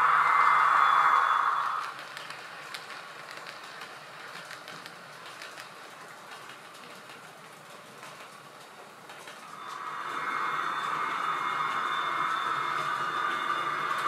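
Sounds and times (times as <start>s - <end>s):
wheels clicking on rails: 0.0s - 14.0s
model train wagons rolling: 1.8s - 9.8s.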